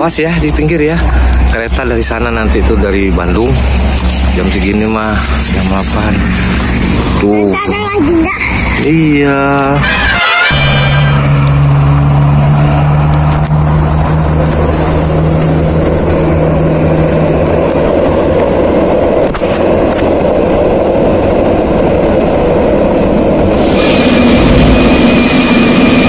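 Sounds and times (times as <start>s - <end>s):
diesel locomotive engine rumbling: 0.0s - 26.0s.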